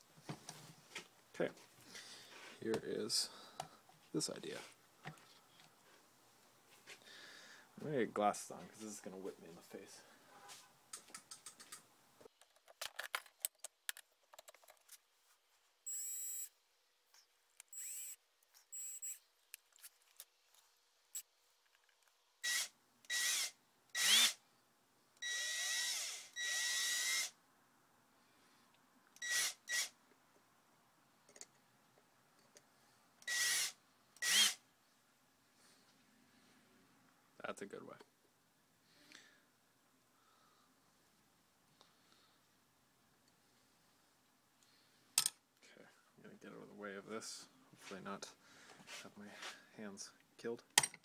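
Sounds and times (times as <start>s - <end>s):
cordless drill motor whining: 17.7s - 19.2s, 22.4s - 24.4s, 25.2s - 27.3s, 29.2s - 29.9s, 33.2s - 34.6s.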